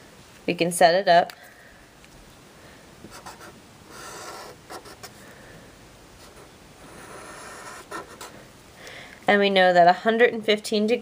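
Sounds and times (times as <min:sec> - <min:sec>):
marker drawing on paper: 0:03.1 - 0:05.2, 0:06.2 - 0:08.4.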